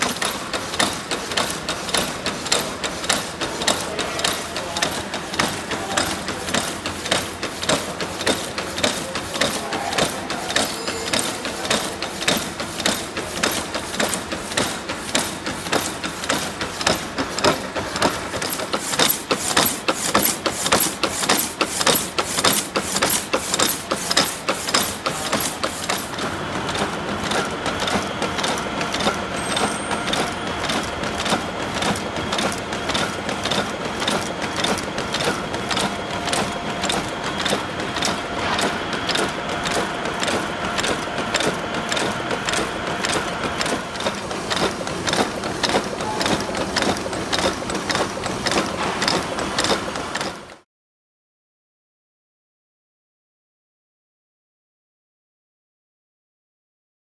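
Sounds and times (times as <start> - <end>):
faint machine whine: 27.4 - 32.7.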